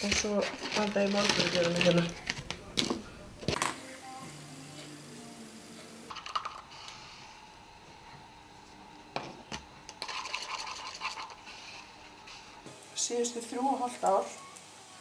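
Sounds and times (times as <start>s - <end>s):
plastic syringes clicking and clattering: 0.0s - 3.6s.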